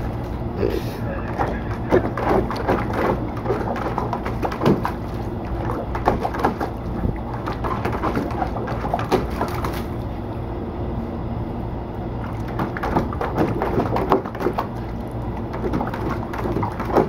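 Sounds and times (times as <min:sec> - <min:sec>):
steady low hum: 0:00.0 - 0:17.0
dog splashing in water: 0:01.3 - 0:10.1, 0:12.2 - 0:17.0.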